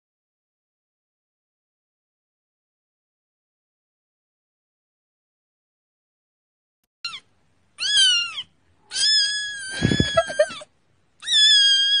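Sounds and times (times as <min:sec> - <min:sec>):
kitten meowing loudly: 0:07.8 - 0:10.6, 0:11.2 - 0:12.0.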